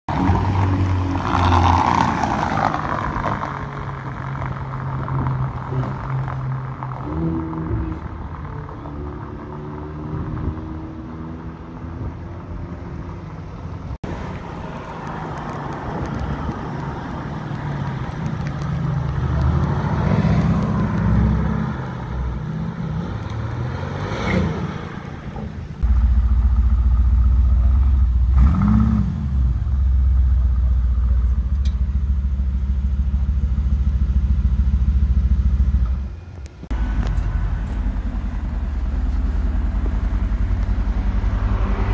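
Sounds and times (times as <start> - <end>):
cars accelerating and passing: 0.1 - 41.9
sports car engine idling: 25.8 - 28.4, 29.6 - 41.4.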